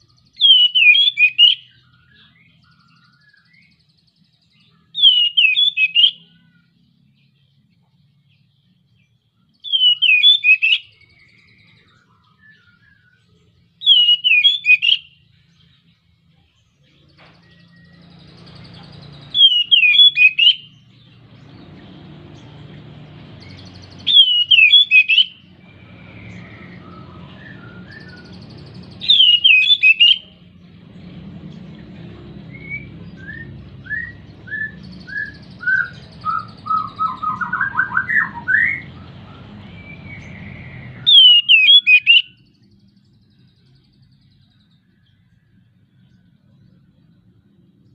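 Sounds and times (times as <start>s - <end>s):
bird trilling: 0.0s - 3.8s, 4.7s - 6.7s, 9.6s - 13.2s, 13.8s - 15.3s, 17.4s - 30.5s, 32.5s - 42.6s
bird singing whistled phrases: 0.1s - 6.8s, 9.5s - 15.3s, 17.4s - 21.6s, 23.4s - 30.4s, 32.5s - 43.0s.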